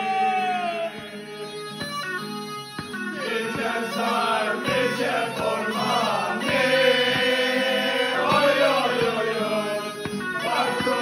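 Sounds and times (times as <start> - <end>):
bagpipe: 0.0 - 11.0
guitar: 0.0 - 11.0
men singing in unison: 3.2 - 11.0.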